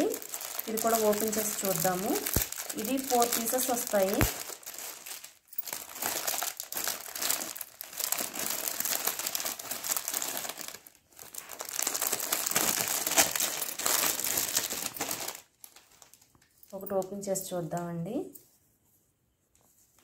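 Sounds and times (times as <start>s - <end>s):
plastic wrapper crinkling: 0.0s - 17.3s.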